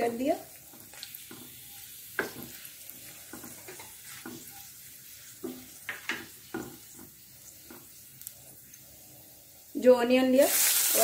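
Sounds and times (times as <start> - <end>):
spices sizzling in hot oil: 0.0 - 11.0
spatula scraping and knocking pan: 0.7 - 8.3.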